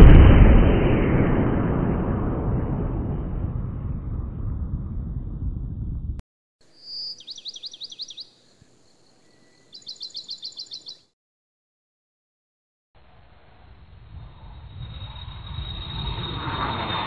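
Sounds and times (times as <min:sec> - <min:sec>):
low rumble of thunder: 0:00.0 - 0:06.2
bird singing: 0:06.7 - 0:11.1.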